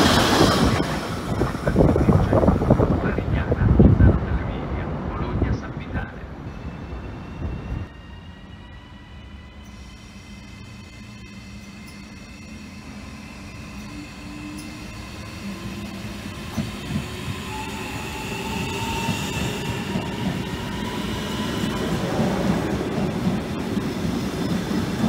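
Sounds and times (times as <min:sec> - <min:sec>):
train running past: 0:00.0 - 0:25.0
wheels rumbling on rails: 0:00.0 - 0:25.0
whining tone: 0:06.4 - 0:25.0.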